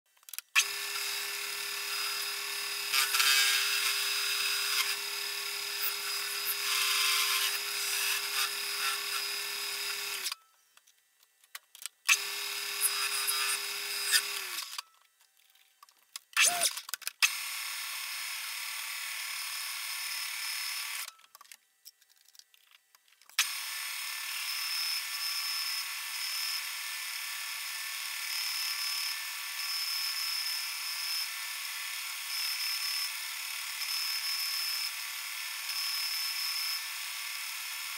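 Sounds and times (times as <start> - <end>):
metal lathe cutting steel: 0.6 - 10.4, 12.1 - 14.8.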